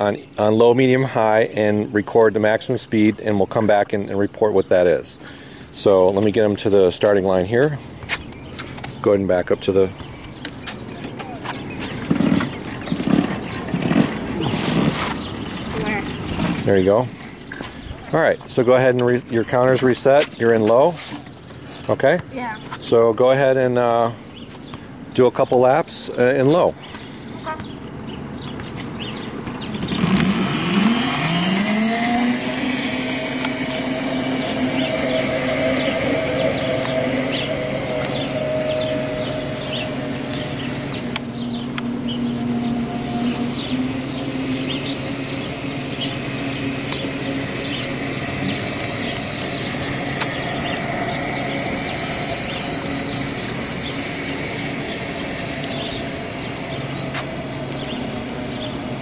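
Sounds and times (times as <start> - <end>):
electric motor whining: 29.7 - 59.0.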